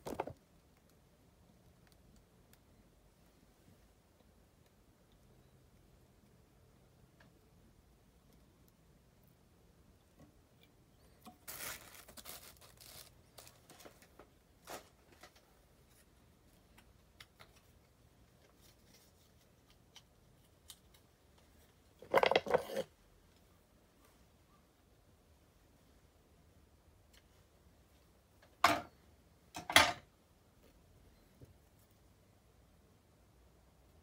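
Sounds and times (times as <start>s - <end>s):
tools rustling and clicking: 22.0s - 22.9s.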